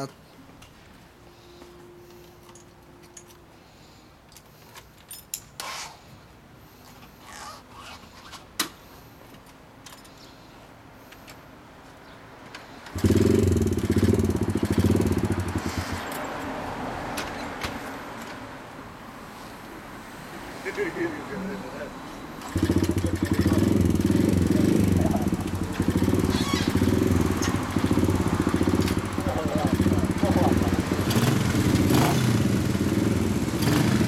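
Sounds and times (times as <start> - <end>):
small motorbike engine starting and idling: 12.9 - 16.3, 22.4 - 34.0.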